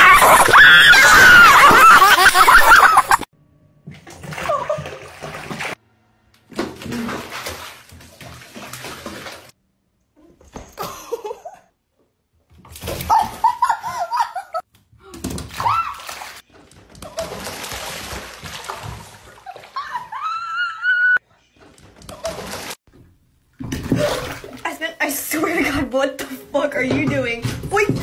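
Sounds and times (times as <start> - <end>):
water splashing in bathtub: 3.8 - 5.8, 6.5 - 9.6, 12.4 - 20.8, 21.6 - 28.0.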